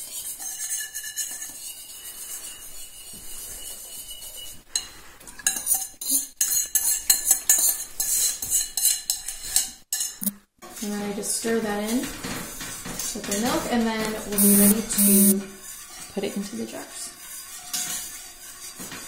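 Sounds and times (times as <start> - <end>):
whisk swishing in milk: 0.0 - 9.7, 15.6 - 19.0.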